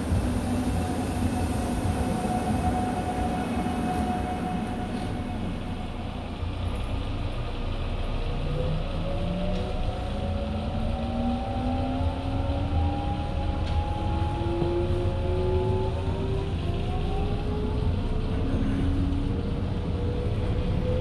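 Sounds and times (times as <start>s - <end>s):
train motors whining: 0.0s - 7.4s
low train rumble: 0.0s - 21.0s.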